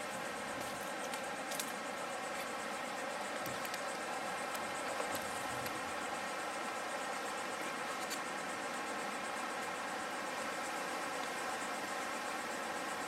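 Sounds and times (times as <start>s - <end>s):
insects chirping: 0.0s - 13.0s
steady hiss: 0.0s - 13.0s.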